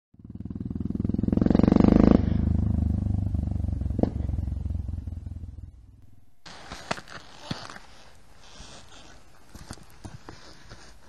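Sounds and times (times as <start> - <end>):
motorcycle engine running: 0.2 - 6.0.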